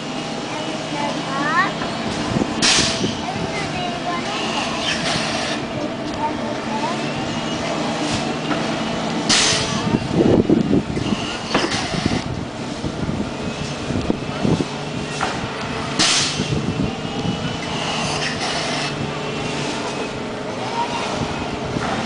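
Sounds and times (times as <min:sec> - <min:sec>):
ride machinery humming: 0:00.0 - 0:22.0.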